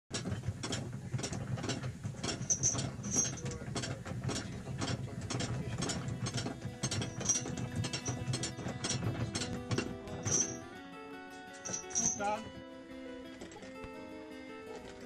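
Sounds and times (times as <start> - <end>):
winch ratchet clicking: 0.2 - 10.6, 11.5 - 12.2.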